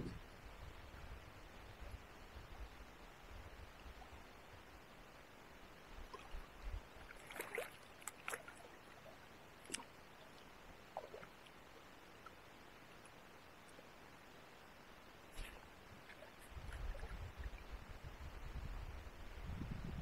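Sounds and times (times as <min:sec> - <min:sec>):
low water wash: 0:00.0 - 0:20.0
small water splashes: 0:06.0 - 0:13.9, 0:15.2 - 0:17.7.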